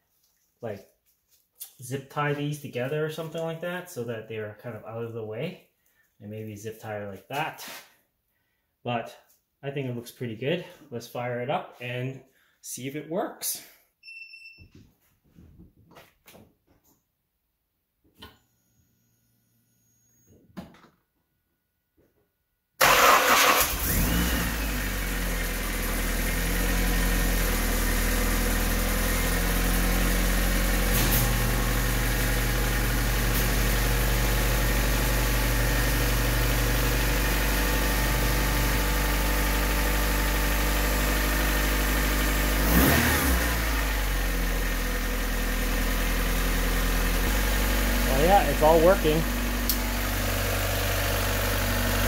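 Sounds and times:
car engine starting and idling: 22.8s - 52.0s.

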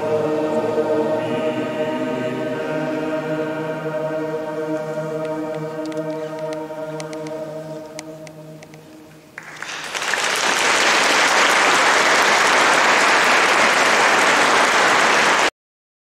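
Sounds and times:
choir singing chord: 0.0s - 9.2s
audience applause: 9.4s - 15.5s.

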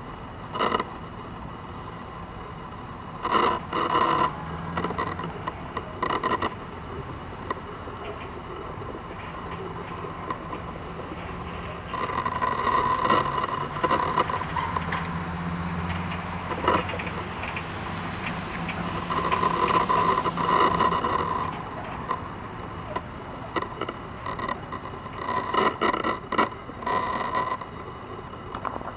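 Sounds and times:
road traffic engines: 0.0s - 28.9s.

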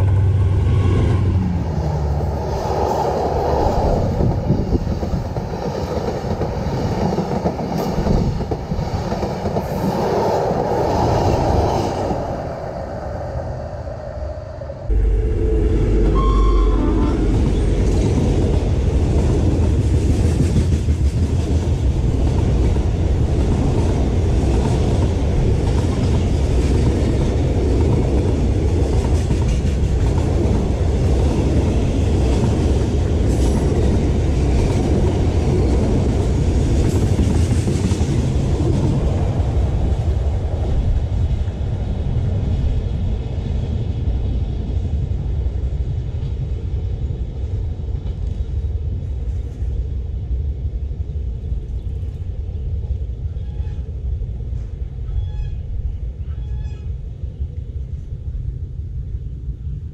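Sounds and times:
train wheels rumbling on rails: 0.0s - 59.9s
sharp high squeal: 14.9s - 17.9s.

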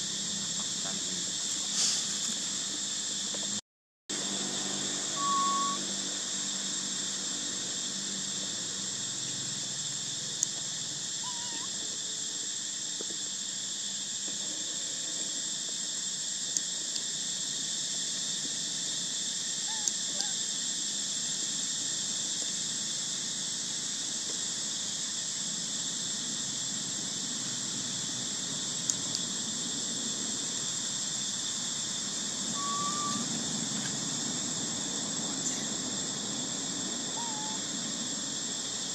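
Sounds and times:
insects chirring: 0.0s - 38.9s
short squeak: 5.2s - 5.8s.

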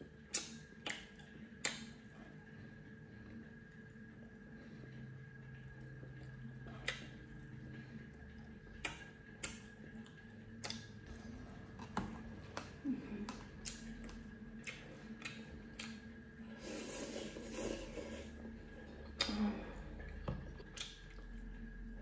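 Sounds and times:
faint steady hum: 0.0s - 22.0s
person chewing: 5.8s - 21.8s.

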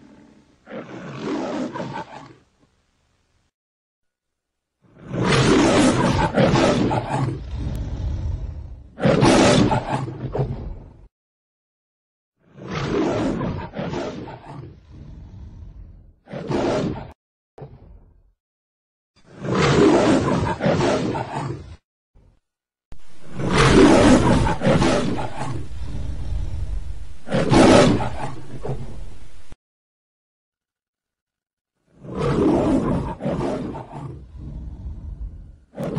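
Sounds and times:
pitched-up lion roar: 0.0s - 2.4s, 5.0s - 11.0s, 12.7s - 17.0s, 19.3s - 21.8s, 23.0s - 29.3s, 32.0s - 35.9s.

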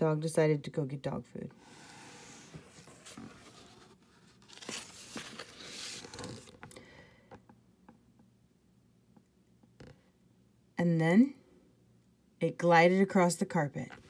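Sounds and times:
book pages turning: 1.6s - 6.7s.

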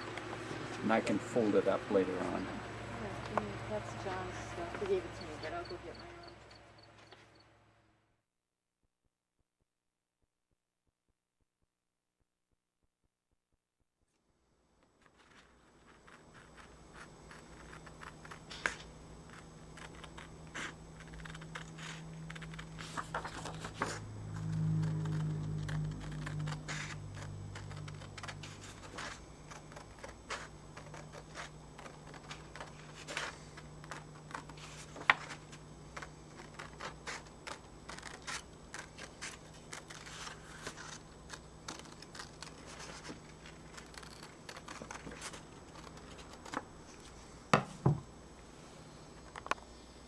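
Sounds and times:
paper rustling: 14.9s - 47.2s
scissors snipping paper: 15.0s - 47.1s.

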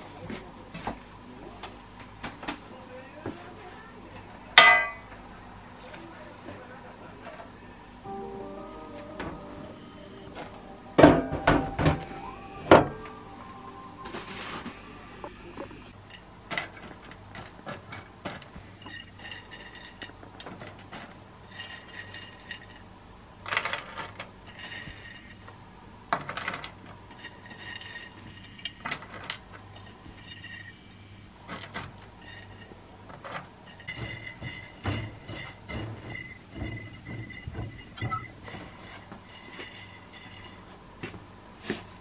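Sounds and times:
kitchenware clinking: 4.6s - 5.2s, 26.3s - 30.8s, 31.5s - 40.7s
steady low hum: 7.8s - 16.1s.

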